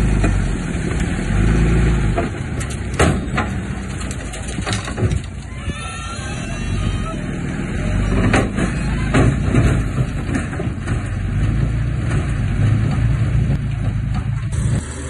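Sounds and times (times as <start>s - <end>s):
diesel machinery engine rumble: 0.0s - 15.0s
metal clanks and knocks: 2.1s - 5.6s, 8.1s - 14.6s.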